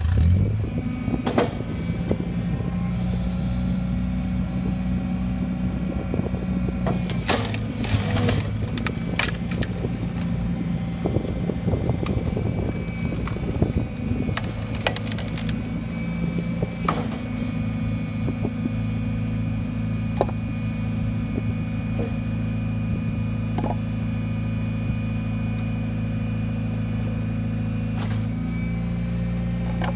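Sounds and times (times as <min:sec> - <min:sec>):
log splitter engine drone: 0:00.0 - 0:29.9
wood cracking and splintering: 0:06.8 - 0:17.6.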